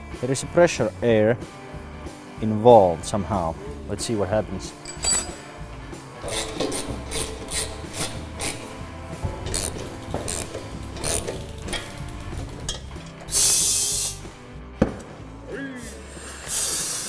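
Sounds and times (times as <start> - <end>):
compressed air hissing from hose: 13.3 - 14.4, 16.0 - 17.0.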